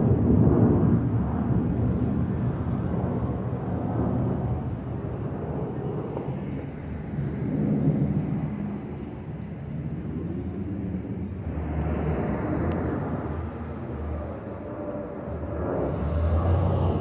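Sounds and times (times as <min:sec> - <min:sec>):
jet airliner rumble overhead: 0:00.0 - 0:17.0.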